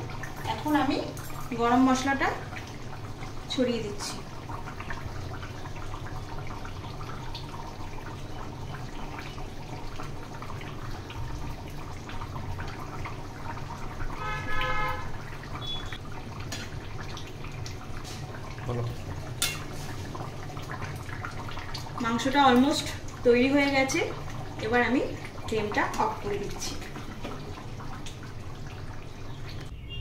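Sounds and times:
curry simmering and bubbling: 0:00.0 - 0:29.9.

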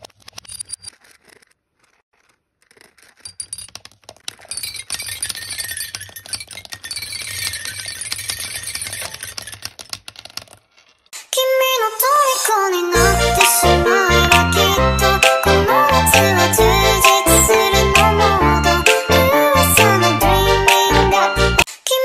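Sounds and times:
children's music: 0:11.2 - 0:22.0.

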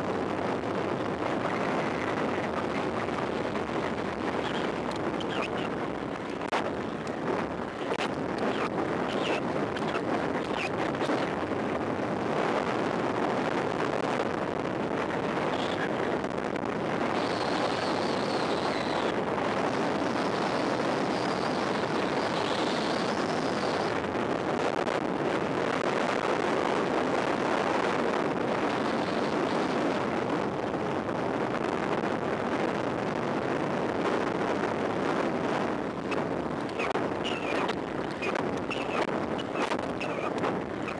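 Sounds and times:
wind on microphone: 0:00.0 - 0:40.9
faint high whine: 0:15.2 - 0:24.8.

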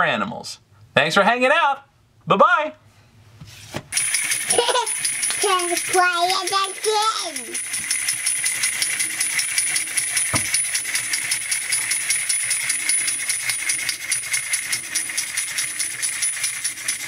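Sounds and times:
clockwork mechanism: 0:03.9 - 0:17.0
toy monkey clapping metal cymbals: 0:04.0 - 0:17.0.

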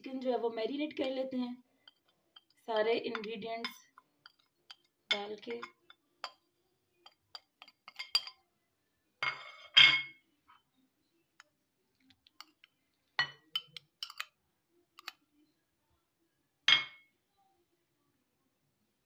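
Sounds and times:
metal spoon clinking on glass bowl: 0:01.0 - 0:08.4, 0:12.4 - 0:14.3, 0:15.0 - 0:15.2.

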